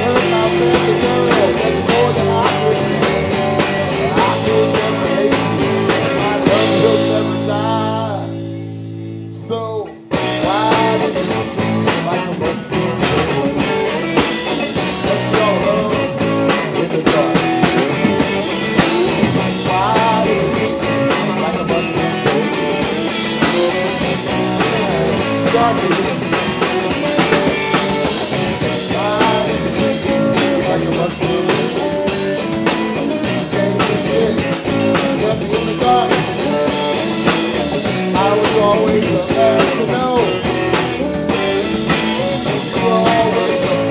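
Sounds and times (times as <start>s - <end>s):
blues-rock band playing: 0.0s - 43.9s
electric guitar bending notes: 0.0s - 43.9s.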